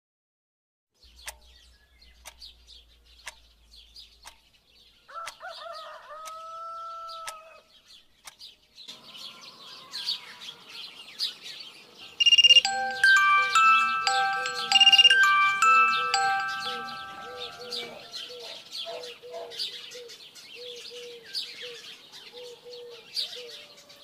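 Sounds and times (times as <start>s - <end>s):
rooster crowing: 5.1s - 7.7s
birds chirping: 7.0s - 23.7s
clock ticking: 12.2s - 18.2s
smartphone alarm ringtone: 12.2s - 18.6s.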